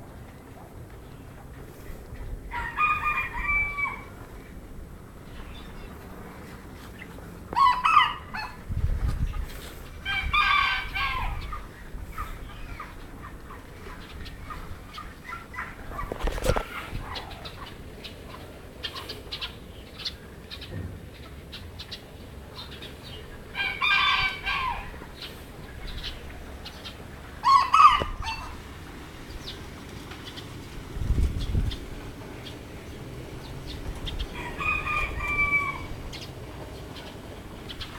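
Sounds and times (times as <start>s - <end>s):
rooster calling: 2.5s - 4.3s, 7.5s - 8.6s, 10.0s - 13.0s, 23.5s - 26.2s, 27.3s - 28.7s, 34.1s - 36.3s.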